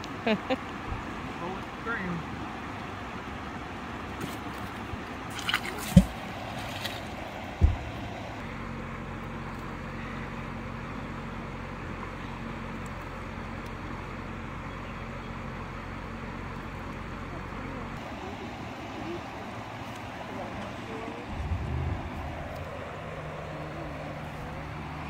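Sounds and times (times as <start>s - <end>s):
flowing water: 2.2s - 8.5s, 16.4s - 25.0s
splash in water: 5.3s - 7.2s
dull thumps: 7.6s - 8.1s
faint low hum: 21.0s - 24.7s.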